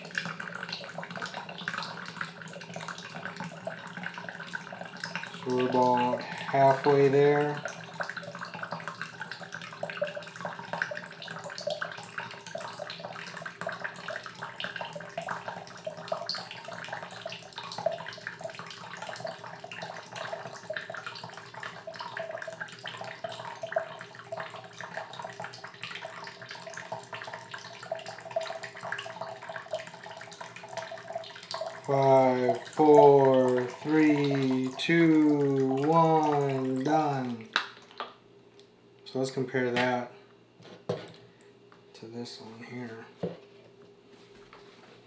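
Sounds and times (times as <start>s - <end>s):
water trickling into plastic cup: 0.0s - 38.1s.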